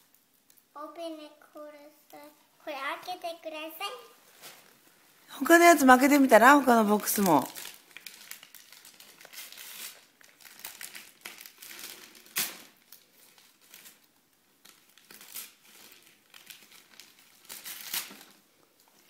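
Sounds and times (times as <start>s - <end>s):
wrapping paper crinkling and tearing: 6.0s - 19.0s.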